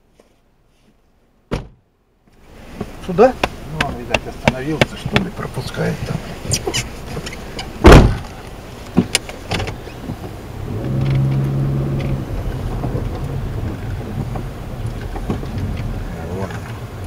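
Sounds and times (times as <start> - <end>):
car engine pulling: 2.4 - 17.0
sharp knocks: 3.4 - 5.4, 7.8 - 8.2
car jolting over ruts: 9.0 - 17.0.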